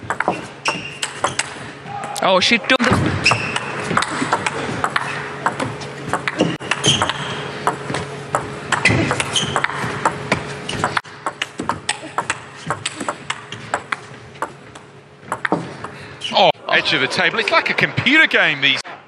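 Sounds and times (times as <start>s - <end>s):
crowd noise in hall: 16.0s - 19.0s.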